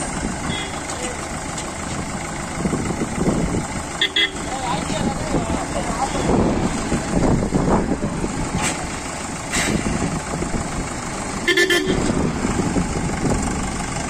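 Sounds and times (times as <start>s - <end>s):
road traffic passing: 0.0s - 14.0s
car horn beep: 0.4s - 0.9s, 4.0s - 4.5s, 11.4s - 12.1s.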